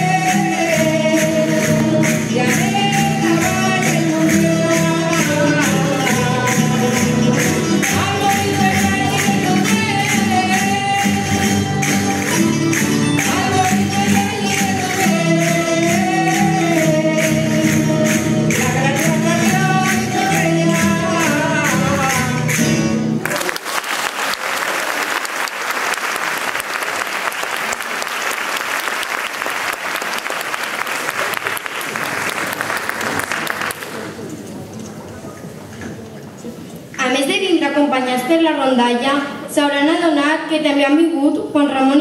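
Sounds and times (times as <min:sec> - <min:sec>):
folk band with guitars and lutes: 0:00.0 - 0:23.3
percussion beat: 0:00.0 - 0:23.4
person singing melody: 0:00.0 - 0:23.6
audience applause: 0:23.2 - 0:34.3.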